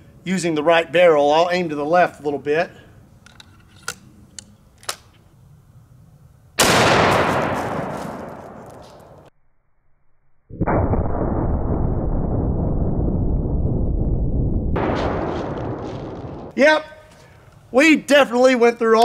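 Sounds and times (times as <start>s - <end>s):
rifle loading clicks: 3.2s - 5.2s
loud rifle shot with echo: 6.6s - 9.1s, 14.8s - 16.5s.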